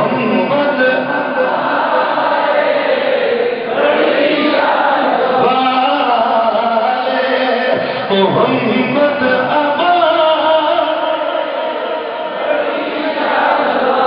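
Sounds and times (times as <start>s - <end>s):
man chanting through microphone: 0.0s - 2.0s, 3.8s - 12.4s
men chanting in unison: 0.0s - 14.0s.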